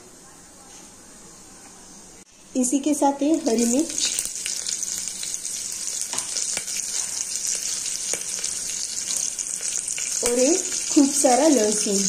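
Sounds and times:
spices sizzling in hot oil: 2.6 - 12.0.

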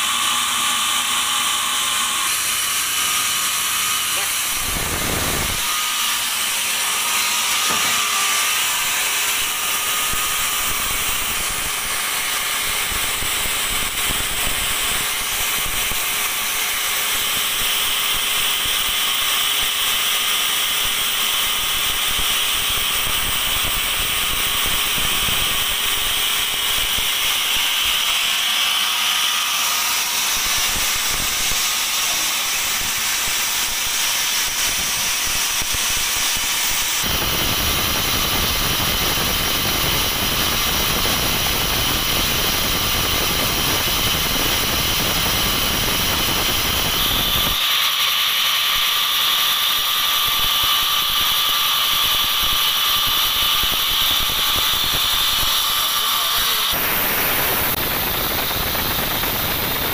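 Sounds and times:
band sawmill hiss and whine: 4.2 - 15.0, 30.1 - 47.8, 53.3 - 59.9.

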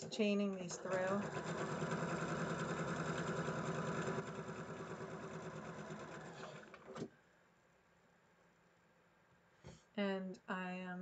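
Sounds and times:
sewing machine stitching: 0.0 - 7.1.

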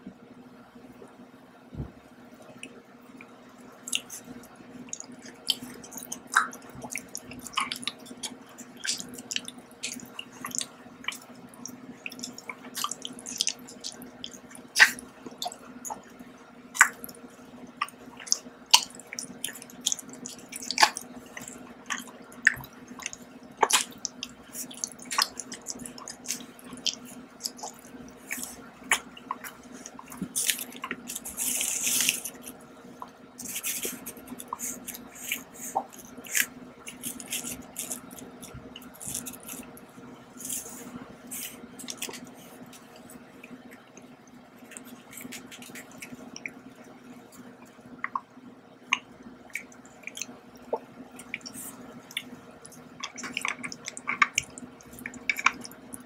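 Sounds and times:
steady low hum: 0.0 - 56.0
wet mouth clicks: 3.9 - 4.3, 4.9 - 11.3, 12.1 - 16.0, 17.8 - 32.6, 33.4 - 39.7, 41.4 - 42.3, 48.9 - 56.0
biscuit crunching: 5.0 - 16.1, 17.8 - 32.6, 33.4 - 39.8, 40.4 - 46.6, 48.9 - 56.0.

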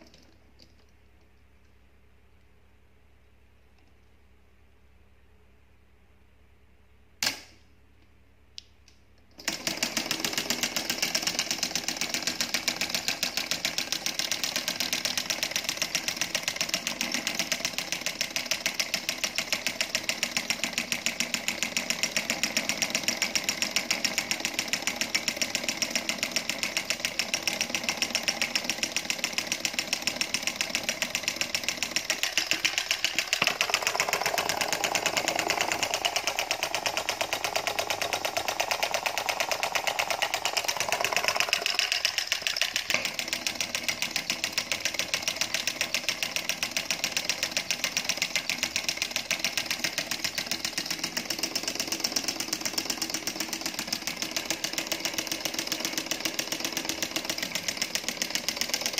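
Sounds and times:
sharp click: 7.2 - 7.6
solenoid engine clattering: 9.4 - 58.9.

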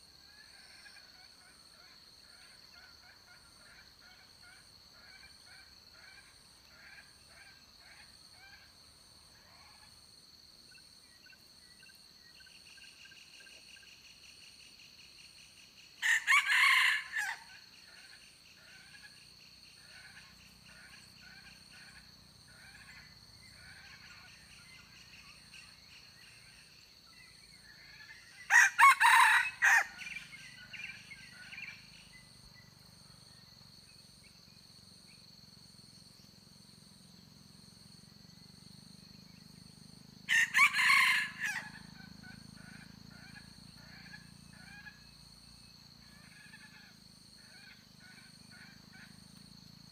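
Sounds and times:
high insect drone: 0.0 - 49.9
rooster crowing: 16.0 - 17.6, 28.5 - 30.2, 40.3 - 41.9.

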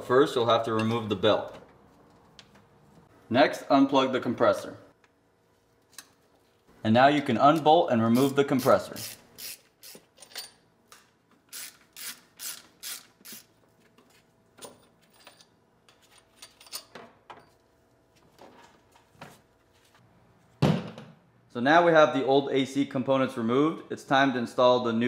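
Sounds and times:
hand ratchet clicking: 11.5 - 13.5.

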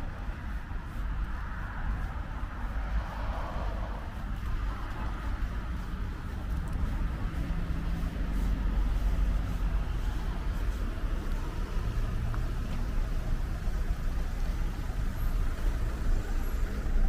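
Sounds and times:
city ambience rumble: 0.0 - 17.0.

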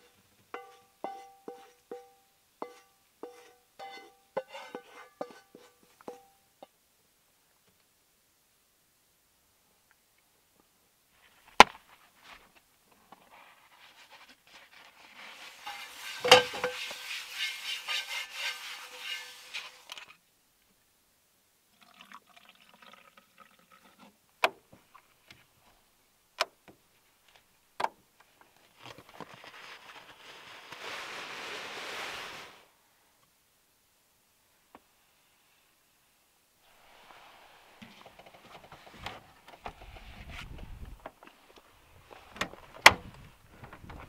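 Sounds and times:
wine glugging into metal cup: 21.8 - 24.0
sleeping bag rustling: 28.7 - 32.7.

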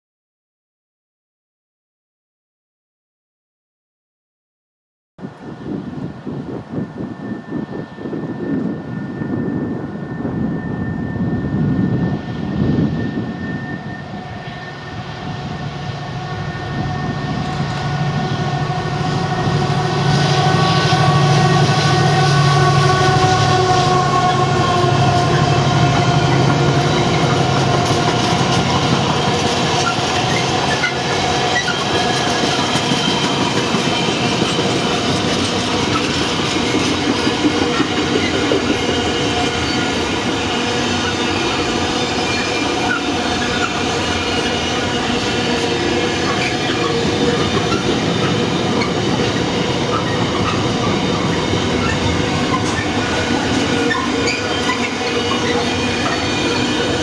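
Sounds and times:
diesel locomotive engine: 5.2 - 57.0
wagon wheels on rails: 42.2 - 57.0.

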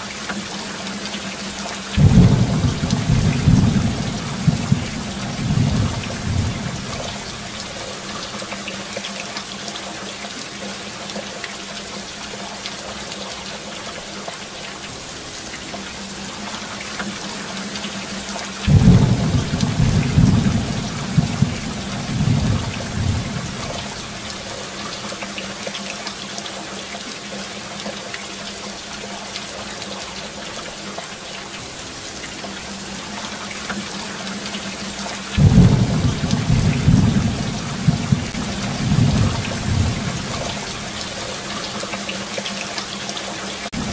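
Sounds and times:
steady rain falling: 0.0 - 43.9
thunder rumbling: 2.0 - 7.8, 18.7 - 24.5, 35.4 - 41.3.

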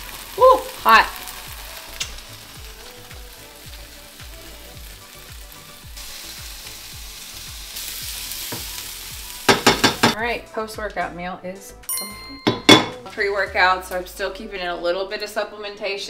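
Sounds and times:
food sizzling in a skillet: 0.0 - 10.2
soft background music beat: 0.0 - 16.0.

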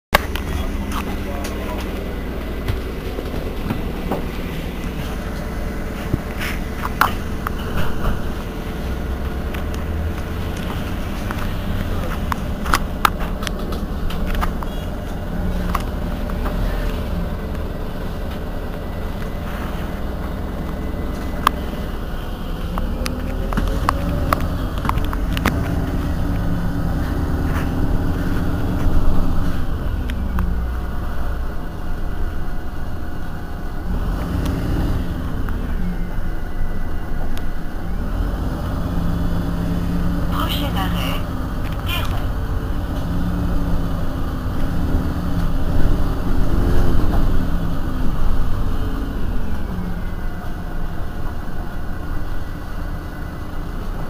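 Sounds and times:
bus diesel engine drone: 0.1 - 54.0
rattles and clicks: 9.2 - 21.9, 22.6 - 30.9.

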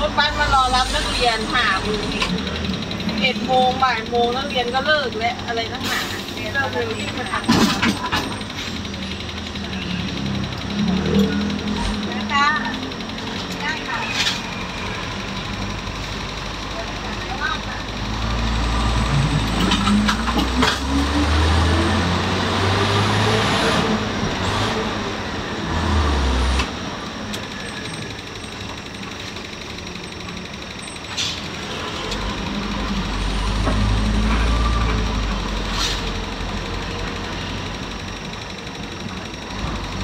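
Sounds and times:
bus engine rumbling: 0.0 - 40.0.

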